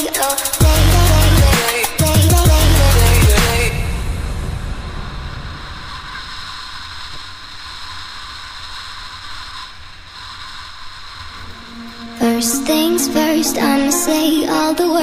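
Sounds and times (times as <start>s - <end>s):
music: 0.0s - 4.2s, 11.4s - 15.0s
wind rush: 3.6s - 15.0s.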